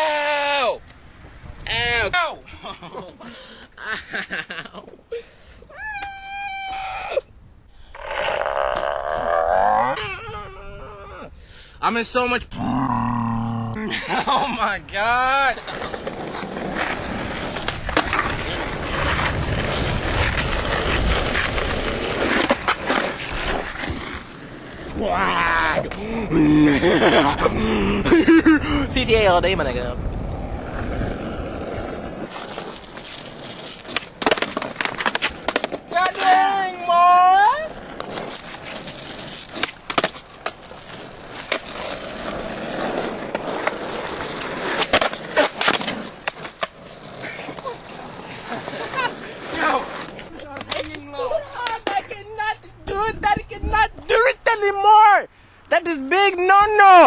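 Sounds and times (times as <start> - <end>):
skateboard wheels rolling on asphalt: 14.0 - 57.0
skateboard clacking on curb: 15.6 - 24.8, 30.4 - 53.4.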